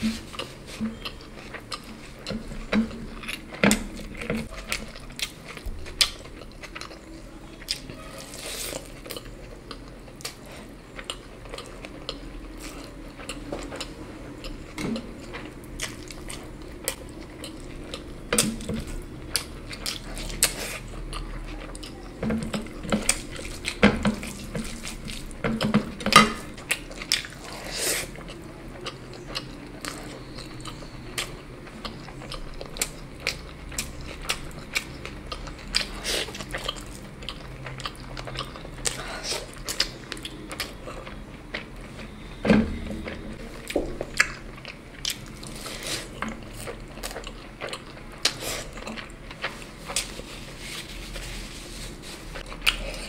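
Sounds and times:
chewing and wet mouth noises: 0.0 - 53.0
dishes clinking: 25.4 - 26.5.

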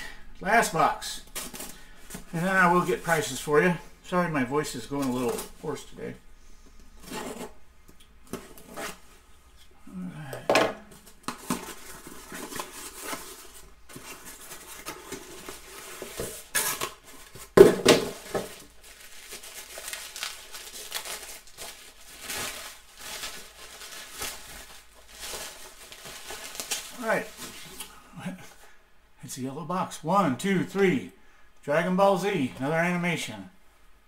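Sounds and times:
cardboard rustling and tearing: 11.2 - 27.8.

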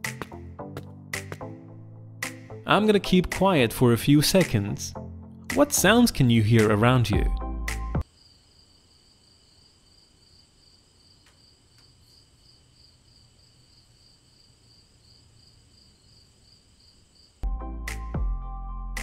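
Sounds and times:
music: 0.0 - 8.0, 17.4 - 19.0
crickets chirping: 8.0 - 17.4.

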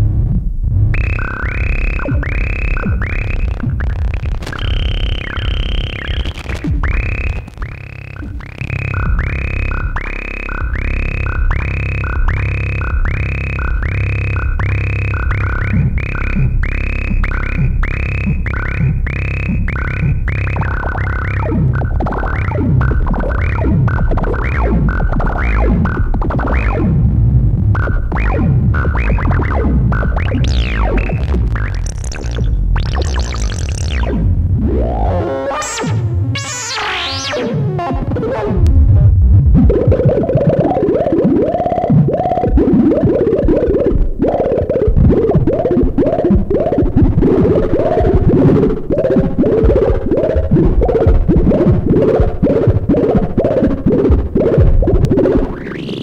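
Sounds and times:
low synthesizer drone: 0.0 - 56.0
synthesizer pitched blips: 0.0 - 56.0.

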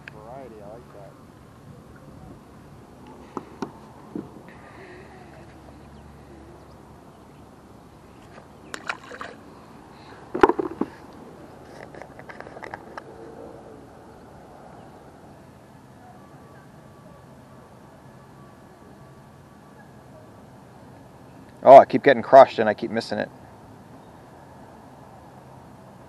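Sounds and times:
water sloshing: 8.1 - 11.1.

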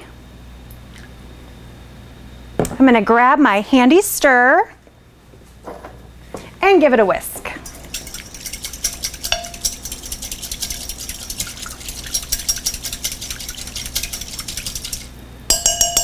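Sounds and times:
whisk clicking against glass bowl: 7.6 - 16.0
ringing clink: 9.3 - 9.7, 15.5 - 16.0.

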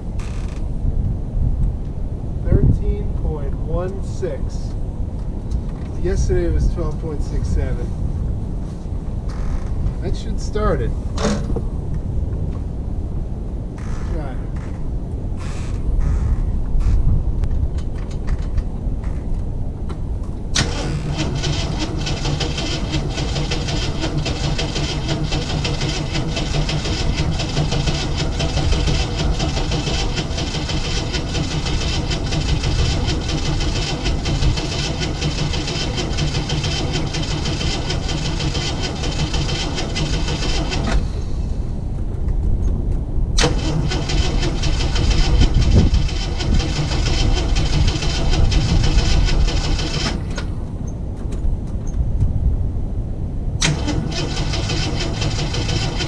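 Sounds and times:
car engine running: 20.6 - 41.6.

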